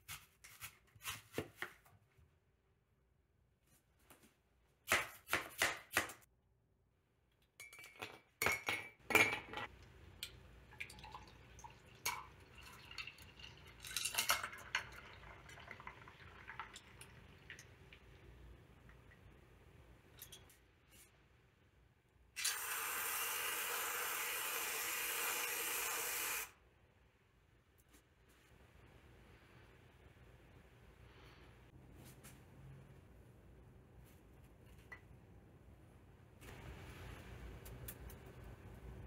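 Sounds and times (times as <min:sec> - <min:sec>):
coffee pouring into glass: 0:10.7 - 0:17.7.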